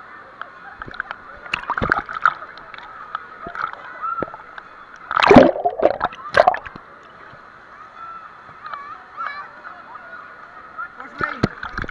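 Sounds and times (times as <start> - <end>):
faint voices of swimmers: 0.0 - 11.9
water splashing and sloshing: 0.8 - 6.9, 11.2 - 11.9
loud splashes: 5.1 - 6.7.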